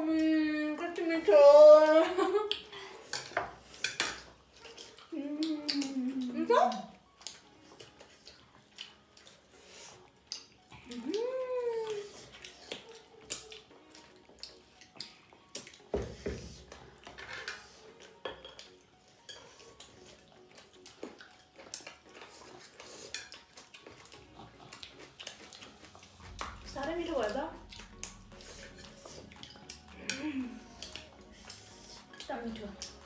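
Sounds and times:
cutlery clinking on plates: 0:03.1 - 0:04.9, 0:17.0 - 0:19.5
person humming: 0:05.1 - 0:06.3, 0:10.8 - 0:12.1, 0:29.9 - 0:30.8.

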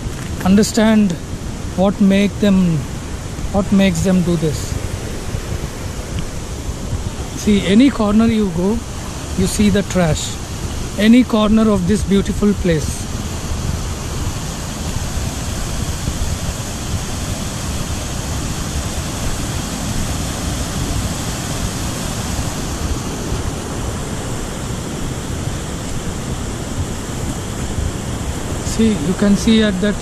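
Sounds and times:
wind rumble on microphone: 0:00.0 - 0:30.0.

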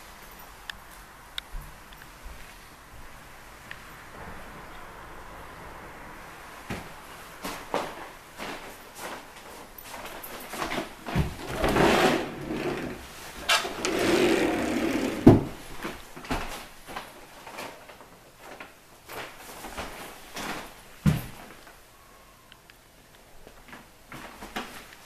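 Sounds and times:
wooden doors clicking and knocking: 0:11.1 - 0:15.6
wooden doors rubbing: 0:11.2 - 0:15.6.

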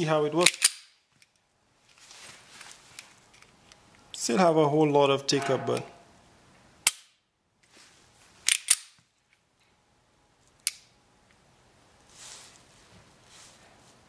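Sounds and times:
handling rustle: 0:01.8 - 0:03.5, 0:12.0 - 0:14.0.

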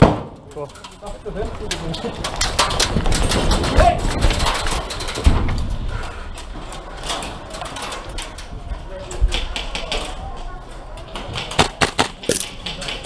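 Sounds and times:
gear rattling: 0:00.6 - 0:08.5.

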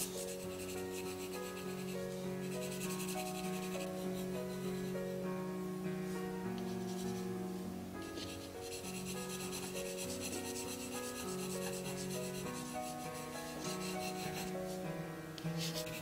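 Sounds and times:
pencil scratching on paper: 0:00.0 - 0:04.9, 0:06.6 - 0:07.3, 0:08.0 - 0:14.6, 0:15.5 - 0:16.0
soft background music: 0:00.0 - 0:16.0.

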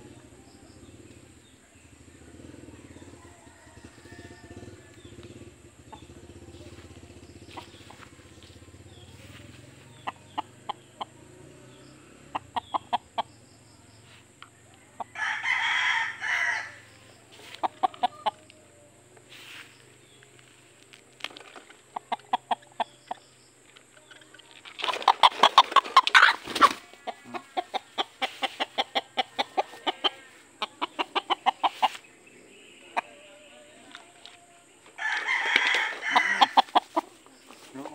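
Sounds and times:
rooster clucking: 0:02.4 - 0:13.5, 0:14.8 - 0:18.6, 0:21.9 - 0:23.3, 0:24.7 - 0:32.1, 0:34.9 - 0:37.9
rooster crowing: 0:02.7 - 0:05.6, 0:14.7 - 0:18.4, 0:26.1 - 0:32.0, 0:34.9 - 0:37.0.

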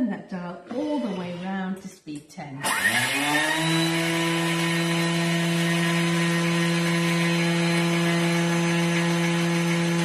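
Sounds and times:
blender motor whine: 0:02.6 - 0:10.0.

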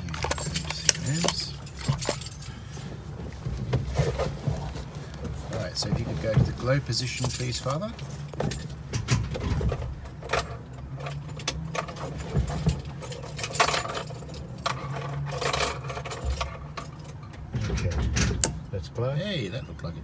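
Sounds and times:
keys jangling: 0:00.0 - 0:02.8, 0:07.0 - 0:17.3
ignition key clicks and rattles: 0:00.0 - 0:02.9, 0:07.0 - 0:18.6.

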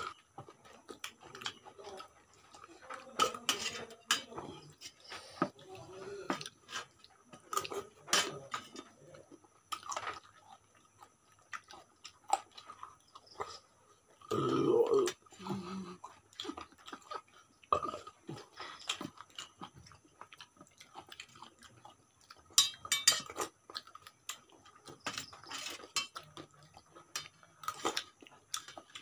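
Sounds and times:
chewing and lip-smacking: 0:09.0 - 0:14.3, 0:15.1 - 0:29.0
spoons clinking on steel plate: 0:22.6 - 0:23.4.

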